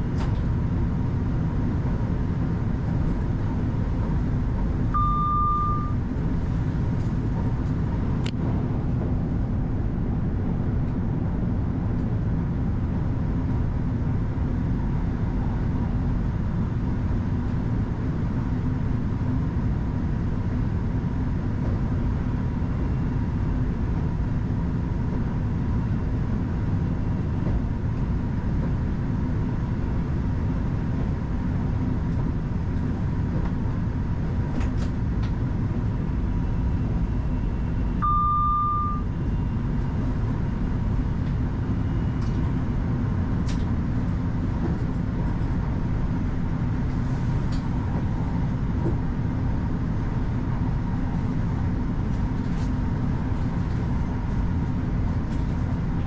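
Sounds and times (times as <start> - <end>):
electric train rumble: 0.0 - 56.0
short electronic beep: 5.0 - 6.0, 38.0 - 39.1.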